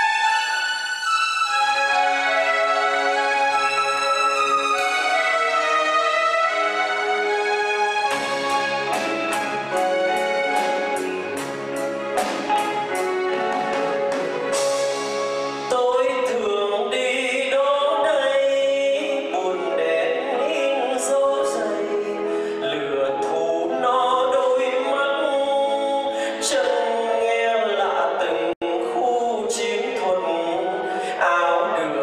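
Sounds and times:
live band playing: 0.0 - 17.7
man singing: 15.7 - 32.0.

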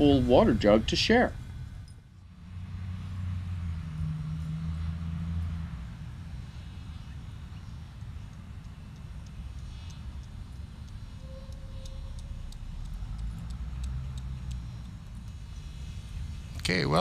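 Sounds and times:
distant road traffic rumble: 0.0 - 17.0
vehicle engine drone: 0.0 - 17.0
faint clicks: 7.9 - 16.3.

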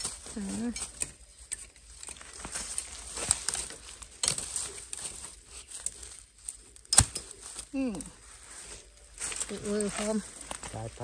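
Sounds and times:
dry leaf litter crackling: 0.0 - 11.0.

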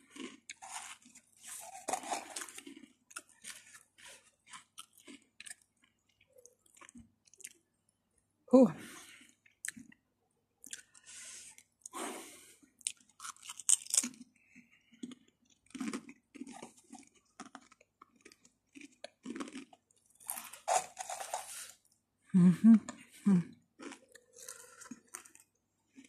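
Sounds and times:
person chewing crunchy crisps: 0.0 - 7.7, 9.0 - 10.0, 10.6 - 22.0, 22.8 - 26.0.

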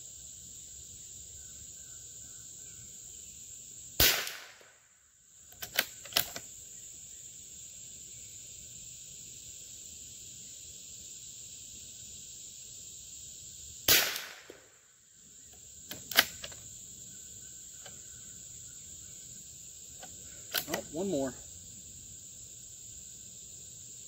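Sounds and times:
rifle shot: 4.0 - 4.8, 13.9 - 14.7
rifle bolt metallic clicks: 5.5 - 6.4, 15.9 - 16.6, 20.0 - 20.8.

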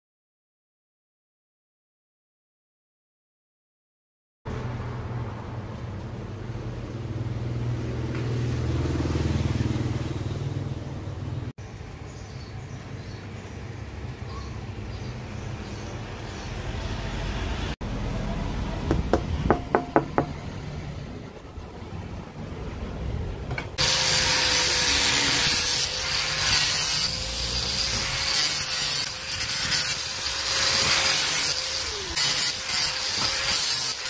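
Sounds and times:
knocks: 18.9 - 20.4
grinder motor whine: 23.8 - 33.7
grinder disc hissing through metal: 23.8 - 34.0.

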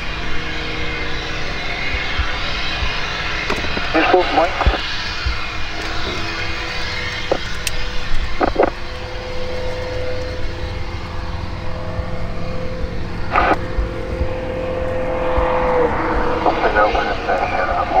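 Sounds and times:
engine droning hum: 0.0 - 18.0.

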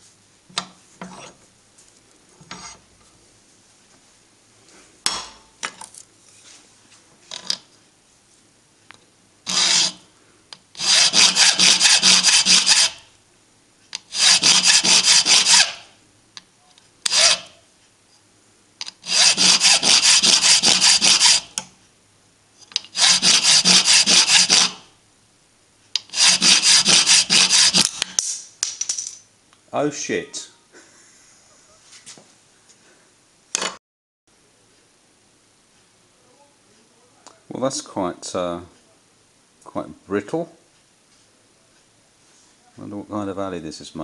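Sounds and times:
hand file rasping on metal: 9.5 - 10.0, 10.8 - 13.0, 14.0 - 15.9, 17.1 - 17.6, 19.0 - 21.6, 22.8 - 24.8, 26.0 - 28.0.

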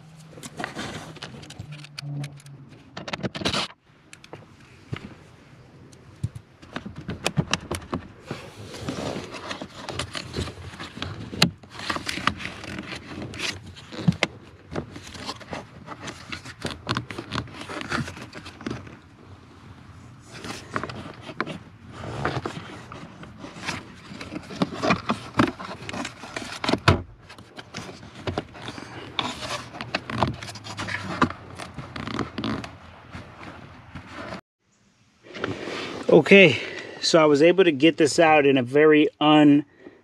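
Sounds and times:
hard plastic clicking and scraping: 0.2 - 4.4, 6.2 - 19.0, 20.3 - 34.4.

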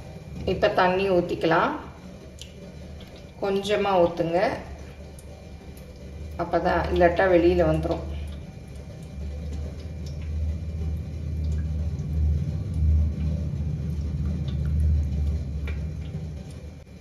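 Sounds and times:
water pouring through funnel: 1.6 - 17.0
low rumble: 6.3 - 17.0.

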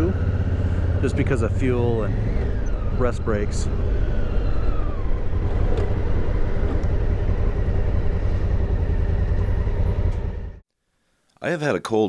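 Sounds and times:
motorcycle engine running: 0.0 - 10.6
road noise: 0.0 - 10.6
wind buffeting: 0.0 - 10.6.

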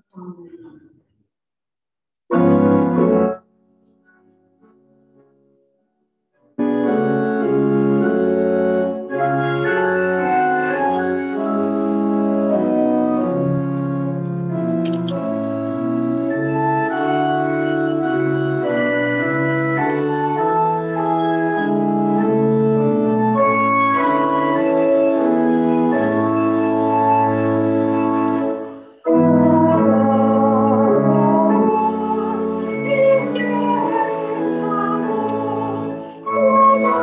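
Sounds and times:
church organ playing chords: 2.3 - 3.4, 6.6 - 37.0.

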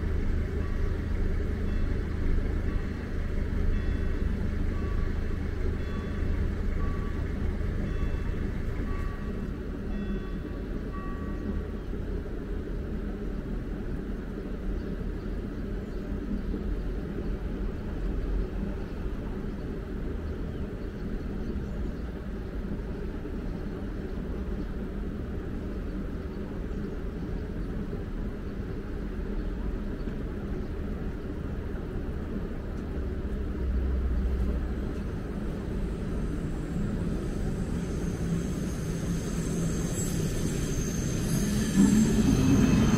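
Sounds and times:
low vehicle rumble: 30.8 - 42.9.

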